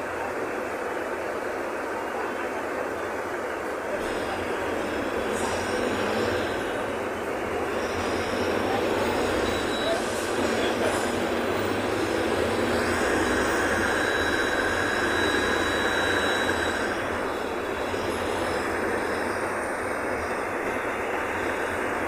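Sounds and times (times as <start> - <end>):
bus engine and road noise: 0.0 - 22.0
faint high whine: 5.0 - 22.0.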